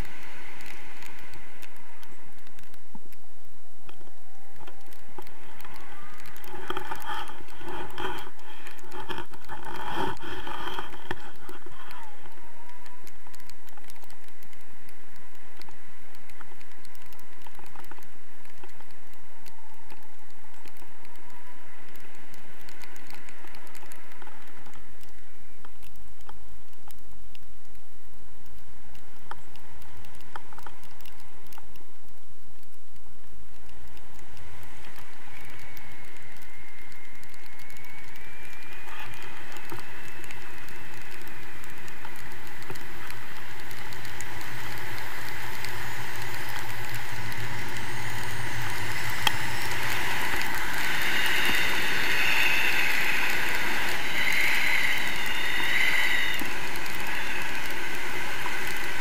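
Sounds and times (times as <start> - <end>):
wind buffeting microphone: 33.7 - 59.0.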